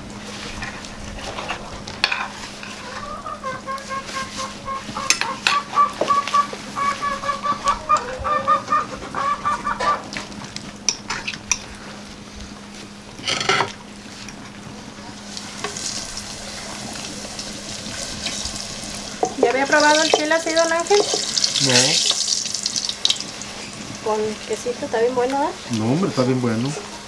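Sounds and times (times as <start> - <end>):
forks clinking on clay plates: 19.2 - 22.2.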